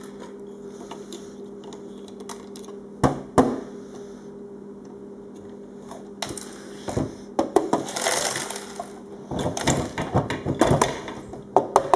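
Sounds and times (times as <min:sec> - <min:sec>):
plastic bricks rattling onto floor: 0:07.6 - 0:11.9.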